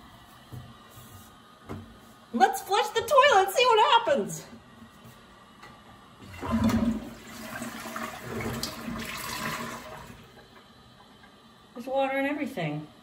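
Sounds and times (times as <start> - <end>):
toilet flushing: 6.2 - 10.6.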